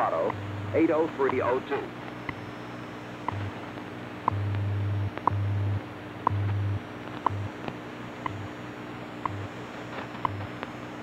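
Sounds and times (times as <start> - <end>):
low time code hum pulses: 0.0 - 11.0
radio hiss: 0.0 - 11.0
short radio ticks: 1.2 - 2.4, 3.2 - 3.5, 9.2 - 9.5.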